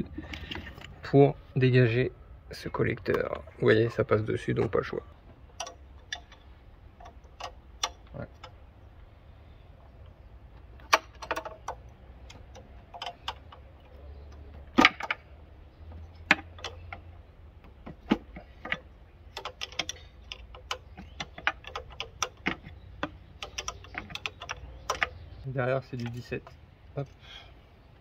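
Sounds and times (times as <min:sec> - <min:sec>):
wrench clicking on metal fittings: 0:10.8 - 0:15.2, 0:15.9 - 0:17.1, 0:17.9 - 0:25.2.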